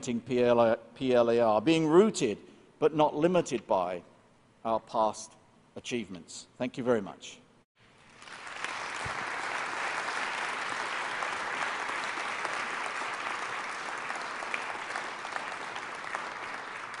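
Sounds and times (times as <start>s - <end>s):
audience applauding: 8.0s - 17.0s.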